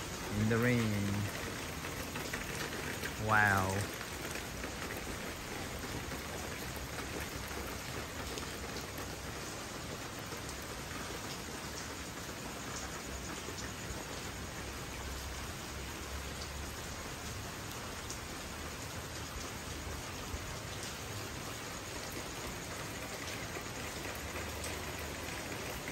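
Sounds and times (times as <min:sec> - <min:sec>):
rain on pool and deck: 0:00.0 - 0:25.9.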